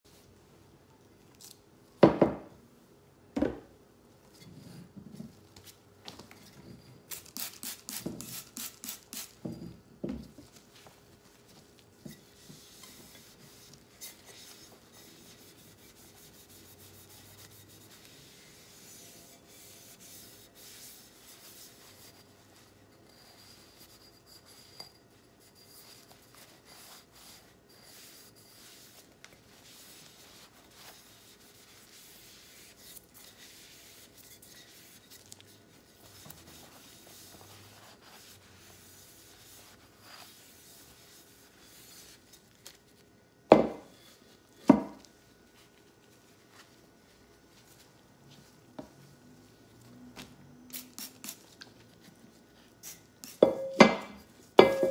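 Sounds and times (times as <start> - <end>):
knock: 2.0 - 2.5
cloth wiping a lampshade: 10.4 - 24.7, 25.4 - 42.8.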